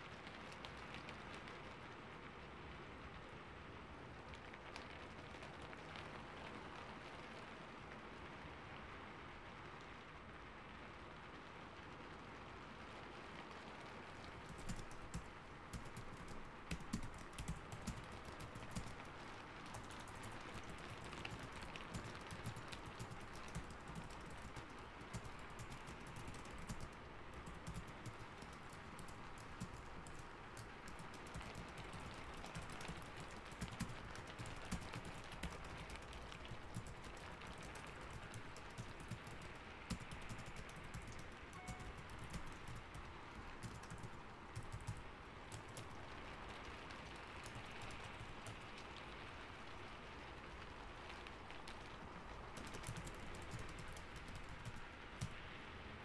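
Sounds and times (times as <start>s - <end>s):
rain hiss: 0.0s - 56.0s
computer keyboard typing: 14.3s - 46.0s, 47.4s - 48.8s, 52.6s - 55.4s.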